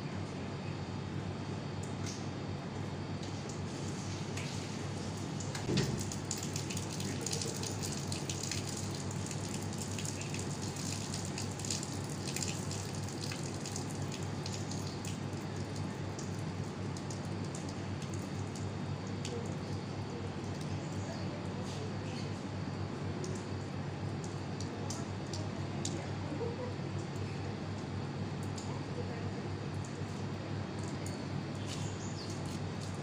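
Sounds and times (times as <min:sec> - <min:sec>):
outdoor background noise: 0:00.0 - 0:33.0.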